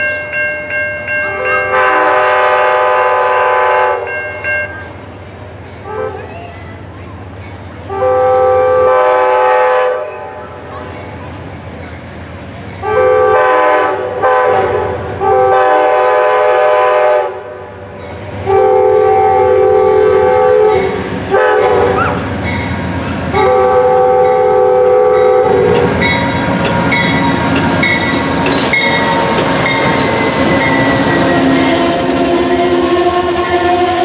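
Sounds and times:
train chime horn: 0.0s - 5.0s, 7.9s - 10.4s, 12.8s - 22.7s, 23.3s - 34.0s
train passing rumble: 0.0s - 34.0s
wheels clacking over rail joints: 22.0s - 33.0s.

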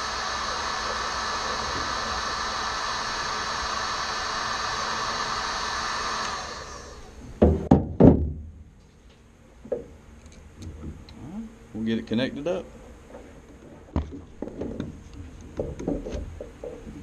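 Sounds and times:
steady blowing hiss: 0.0s - 7.3s
loud knocks: 7.4s - 8.5s.

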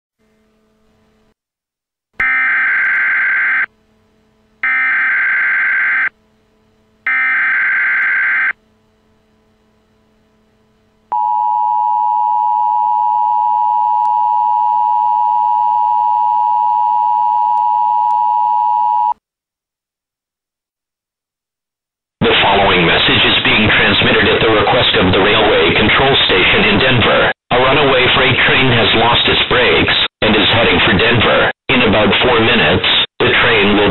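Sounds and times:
steady two-tone attention signal: 11.1s - 19.2s.

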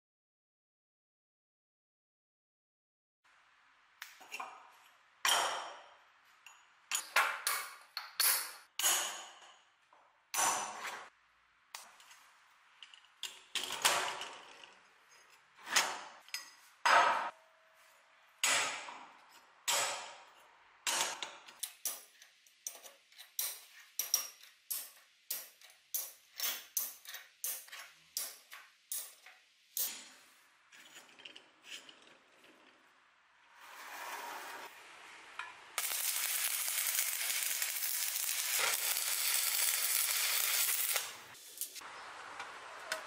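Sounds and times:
steel strips clinking: 35.8s - 41.8s.

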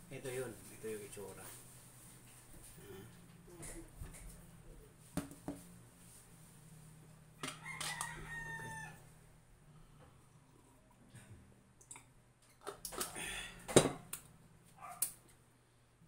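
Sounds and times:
rooster crowing: 7.4s - 9.2s.

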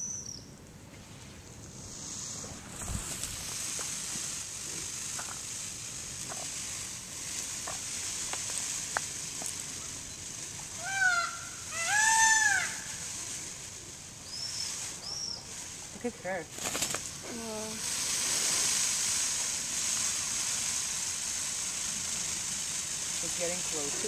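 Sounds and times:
steady high hiss: 0.0s - 24.0s
peacock calling: 3.2s - 15.9s.

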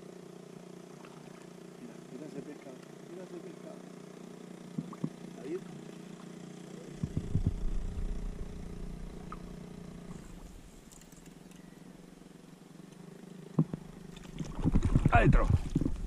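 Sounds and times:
low hum: 0.0s - 16.0s
low rumbles: 7.0s - 11.5s, 13.6s - 16.0s.

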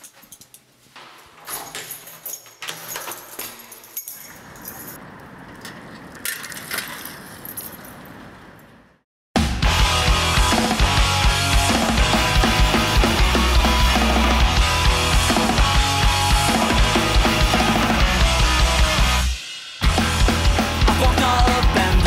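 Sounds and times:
keys jangling and clicking: 0.0s - 0.8s, 1.4s - 5.0s, 6.3s - 8.2s
loud punk rock with drums: 9.4s - 22.0s.

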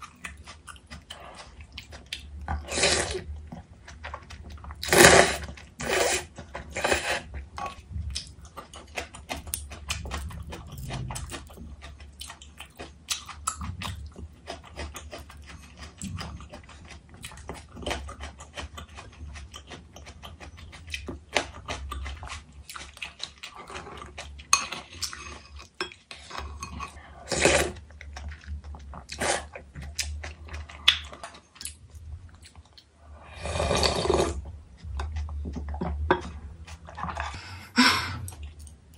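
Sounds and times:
chewing: 0.0s - 38.9s
slurping noodles and broth: 2.6s - 3.3s, 4.8s - 7.3s, 27.1s - 27.8s, 33.2s - 34.4s.

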